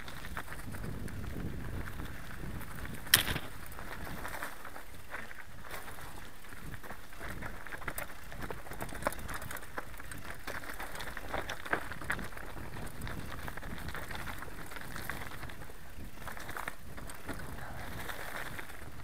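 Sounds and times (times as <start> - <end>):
bike rattling and clicking: 0.0 - 19.0
tyres crunching over stones: 0.0 - 19.0.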